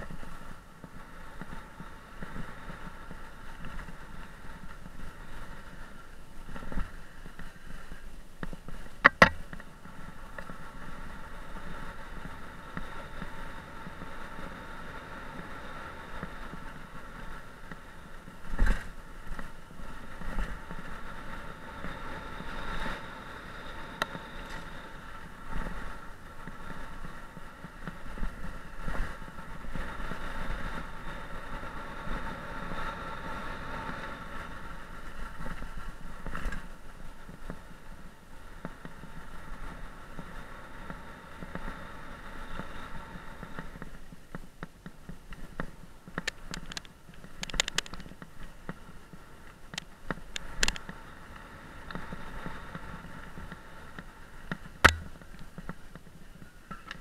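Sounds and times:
bike rattles and knocks: 0:08.3 - 0:10.5, 0:54.5 - 0:56.0
steady high hum: 0:54.8 - 0:55.4.

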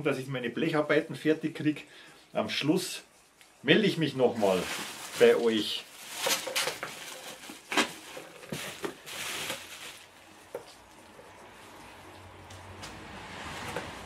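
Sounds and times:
cardboard and packing rustling: 0:04.2 - 0:11.8.

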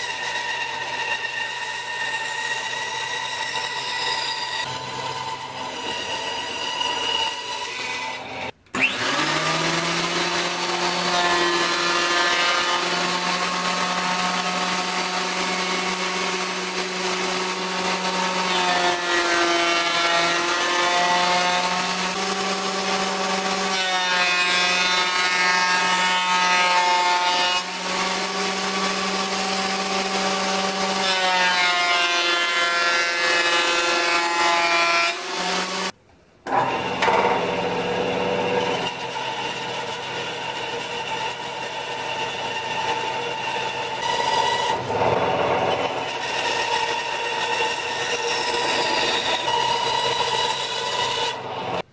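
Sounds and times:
bandsaw running: 0:00.0 - 0:34.3, 0:35.1 - 0:51.9
thickness planer planing boards: 0:00.0 - 0:51.9.

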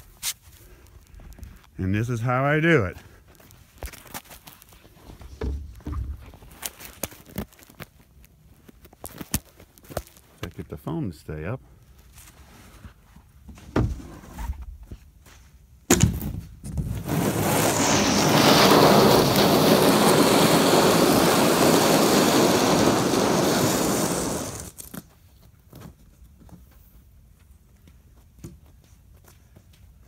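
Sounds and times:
plywood landing with thump: 0:15.9 - 0:16.9
plywood scraping pavement: 0:16.2 - 0:25.1.

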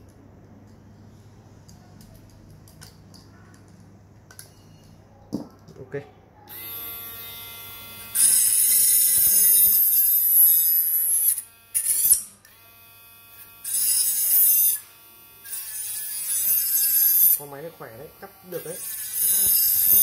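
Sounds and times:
rotary tool motor whine: 0:06.5 - 0:17.4, 0:18.6 - 0:20.0
cutting disc biting wood: 0:18.6 - 0:20.0.

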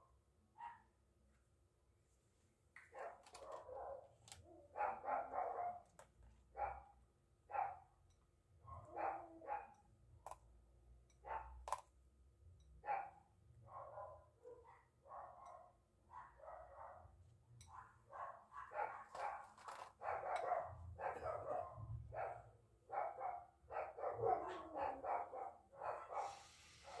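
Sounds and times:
dog barking: 0:00.6 - 0:00.9, 0:02.9 - 0:07.9, 0:08.6 - 0:09.8, 0:11.2 - 0:11.6, 0:12.8 - 0:27.0.

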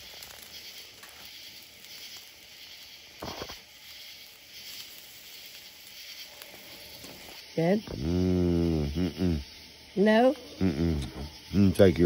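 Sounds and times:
campfire wood crackling: 0:00.0 - 0:12.0
steaks sizzling on a grill: 0:00.0 - 0:12.0.

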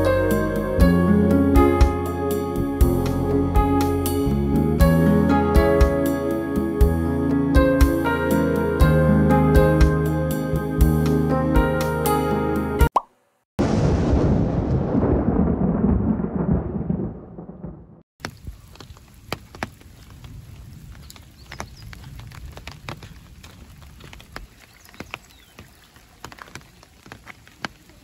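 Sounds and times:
thunder rumble: 0:13.6 - 0:18.0
light rain dripping: 0:18.2 - 0:28.0.

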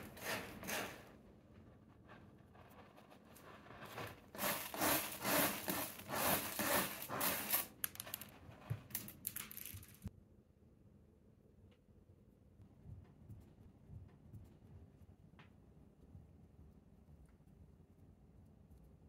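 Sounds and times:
scratchy rubbing and crunching: 0:00.0 - 0:10.0.

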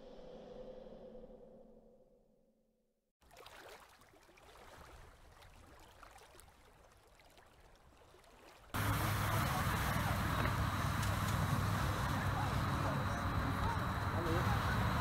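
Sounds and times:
steady low hum: 0:08.8 - 0:15.0.

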